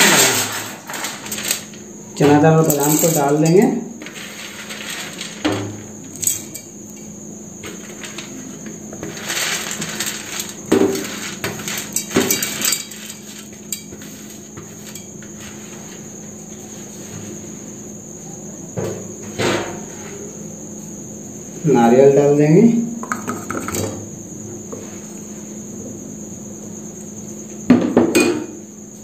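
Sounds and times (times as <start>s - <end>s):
dry nuts rattling against metal: 0.0s - 7.1s, 9.0s - 13.9s.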